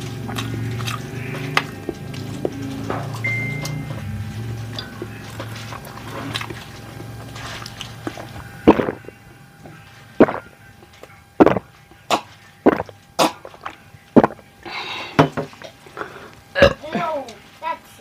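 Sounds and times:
person gulping water: 3.9 - 9.2, 10.2 - 10.6, 11.4 - 14.4, 15.2 - 16.9.

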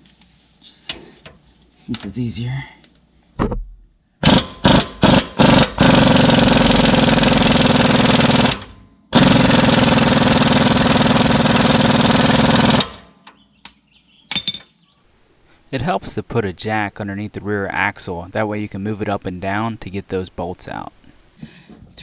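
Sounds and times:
pneumatic wrench: 4.2 - 13.0.

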